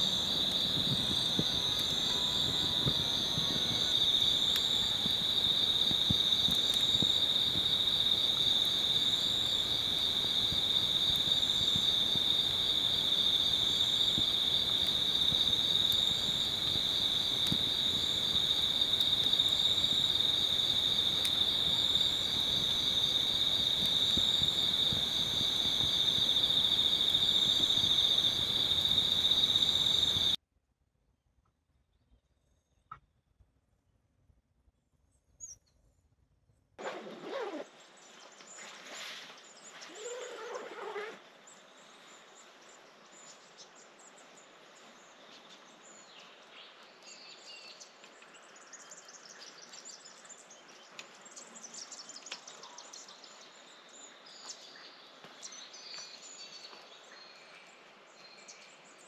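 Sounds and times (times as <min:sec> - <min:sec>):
crickets trilling: 0:00.0 - 0:30.4
faint high pulsing call: 0:00.8 - 0:05.7.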